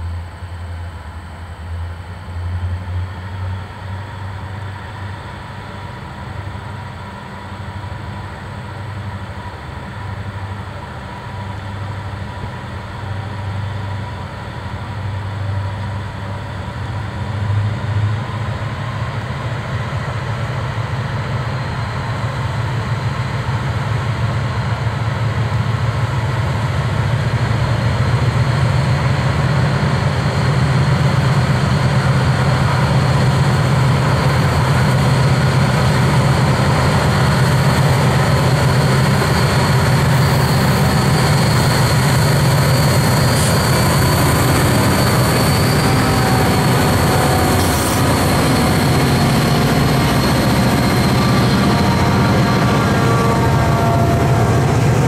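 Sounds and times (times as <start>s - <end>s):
diesel locomotive engine drone: 0.0s - 55.0s
freight cars rolling past: 28.8s - 55.0s.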